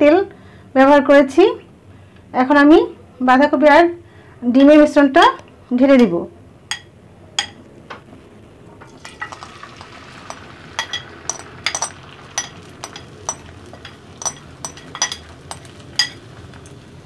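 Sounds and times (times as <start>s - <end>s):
spoon clinking on glass bowl: 6.7s - 7.6s, 9.0s - 16.8s
batter sizzling in frying pan: 8.8s - 17.0s.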